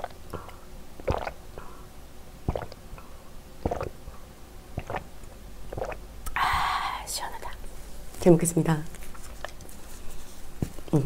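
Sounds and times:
person gulping a drink: 0:00.0 - 0:01.8, 0:02.4 - 0:04.0, 0:04.8 - 0:06.4.

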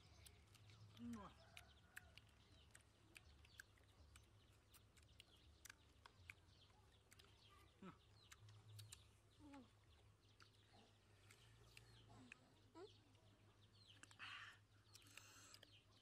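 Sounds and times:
faint small clicks: 0:00.0 - 0:16.0
faint animal calls: 0:14.0 - 0:15.7.

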